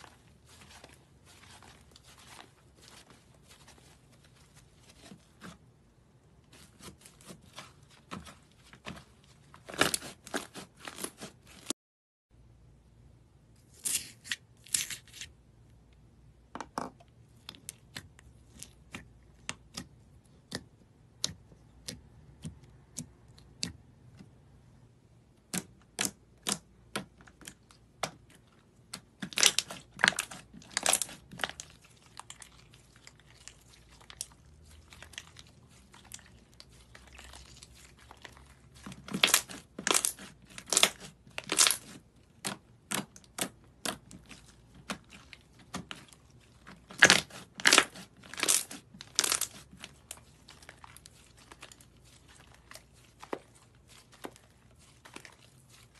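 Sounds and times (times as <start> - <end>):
slime popping and crackling: 29.0 - 55.9.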